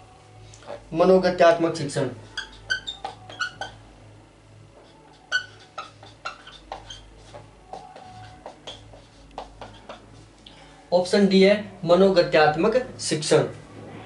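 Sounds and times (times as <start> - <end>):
steady low hum: 0.0 - 14.0
marker squeaking on whiteboard: 0.6 - 0.8, 2.2 - 3.8, 4.8 - 10.2.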